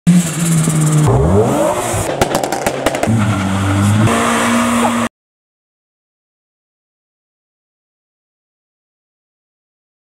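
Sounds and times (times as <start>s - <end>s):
car engines revving: 0.1s - 5.1s.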